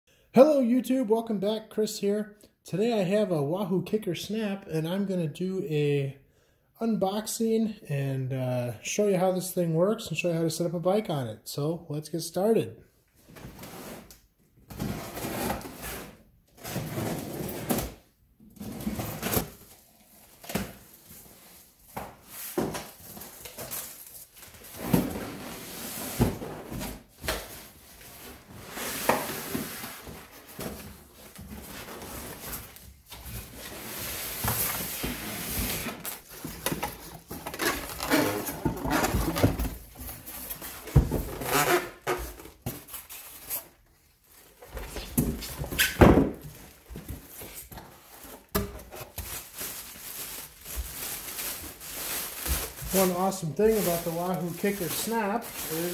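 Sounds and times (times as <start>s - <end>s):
packing foam and plastic rustling: 14.7s - 55.9s.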